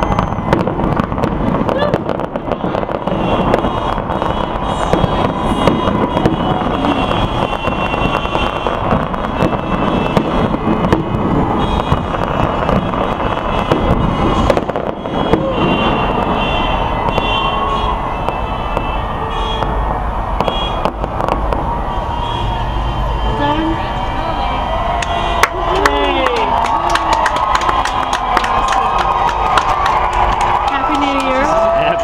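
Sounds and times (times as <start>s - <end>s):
fireworks bangs and crackles: 0.0s - 24.1s, 24.9s - 32.0s.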